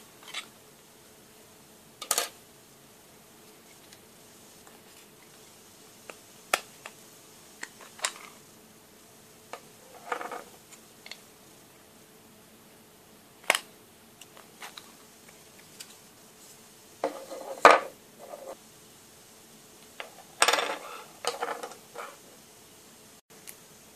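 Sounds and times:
plastic clicks and snaps: 13.4 - 14.8.

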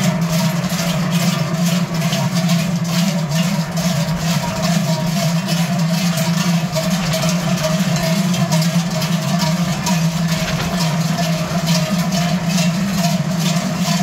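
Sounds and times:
large cowbells clanging: 0.0 - 14.0.

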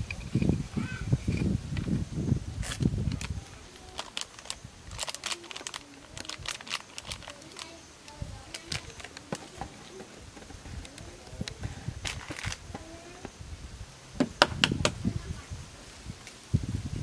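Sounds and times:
plastic packet crinkling: 2.6 - 10.0, 10.7 - 12.6.

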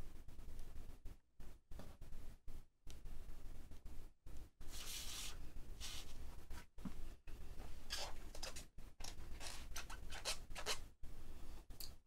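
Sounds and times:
plastic stencil rustles and scrapes: 4.6 - 6.8, 7.9 - 10.9.

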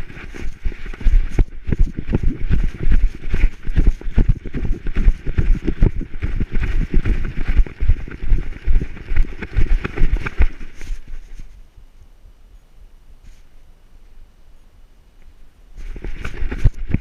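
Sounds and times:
rustling hiss: 6.6 - 17.0.

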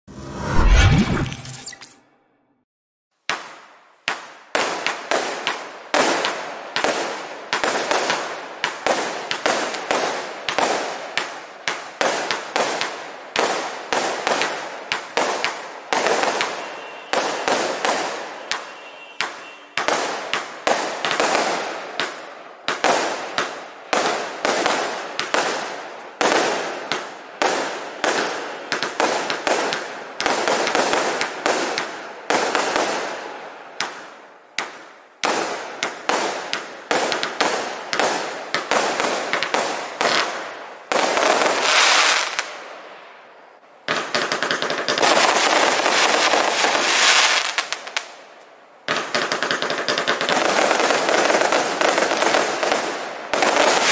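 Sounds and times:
firework bangs: 3.3 - 42.5, 43.9 - 48.1, 48.9 - 53.9.

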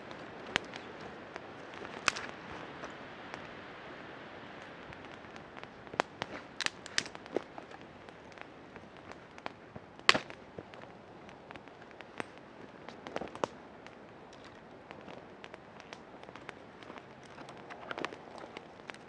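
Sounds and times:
campfire crackling and popping: 0.0 - 19.0.

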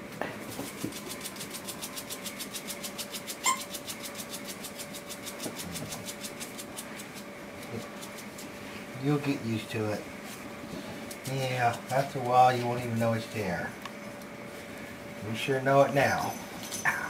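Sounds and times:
puppy scratching with hind leg: 0.4 - 8.9, 10.2 - 13.0
short high squeak: 3.4 - 3.7.

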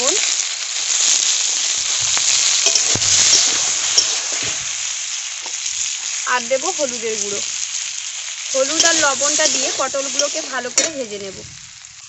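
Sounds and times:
vegetables sizzling in hot oil: 0.0 - 12.0
metal spatula scraping a pan: 8.6 - 11.1.

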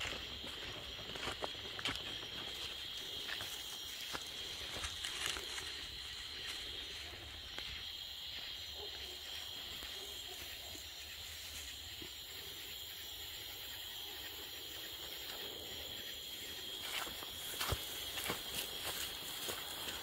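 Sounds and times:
crickets buzzing chorus: 0.0 - 20.0
dogs rustling through dry grass: 2.1 - 7.2, 16.8 - 20.0.

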